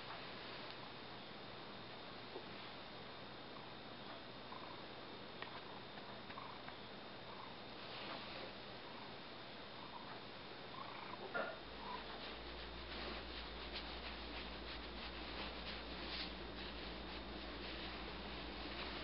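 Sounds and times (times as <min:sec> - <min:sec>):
low steady hum: 0:00.0 - 0:19.0
hand rubbing fur: 0:11.8 - 0:19.0.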